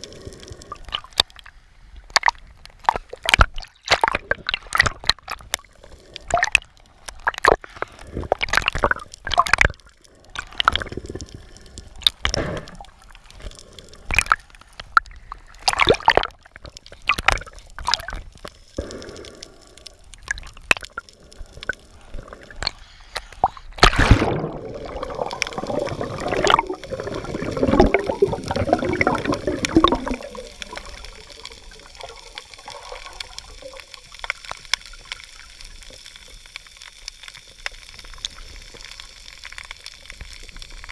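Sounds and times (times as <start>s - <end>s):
water sloshing and gurgling: 0.0s - 36.4s
water churning: 23.4s - 34.2s.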